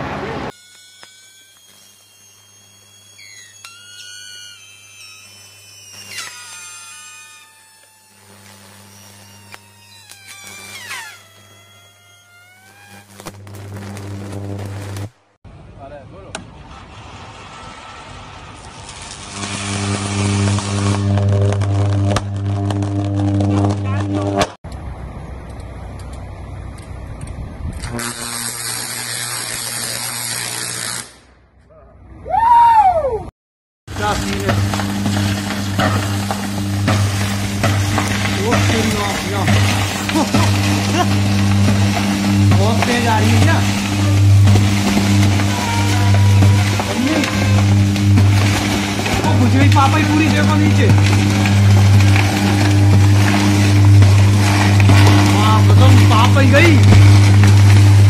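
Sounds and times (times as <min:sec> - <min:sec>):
low electrical buzz: 0:00.0 - 0:15.3, 0:18.9 - 0:31.3, 0:33.9 - 0:58.0
high whistling tones: 0:00.6 - 0:13.1
sharp electrical cracks: 0:00.8 - 0:15.4, 0:16.5 - 0:24.6, 0:27.7 - 0:31.4, 0:33.9 - 0:58.0
low electrical hum: 0:33.9 - 0:58.0.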